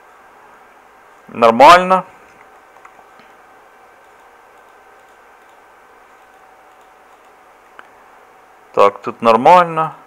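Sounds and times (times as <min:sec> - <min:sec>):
faint steady hum: 0:00.0 - 0:10.0
steady low hiss: 0:00.0 - 0:10.0
small faint clicks: 0:04.0 - 0:08.0.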